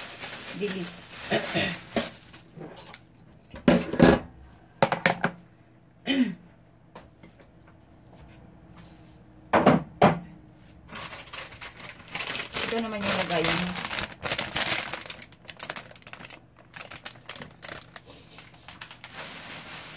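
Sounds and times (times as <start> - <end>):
kitchen things knocking and clattering: 3.5 - 5.4, 9.5 - 10.3.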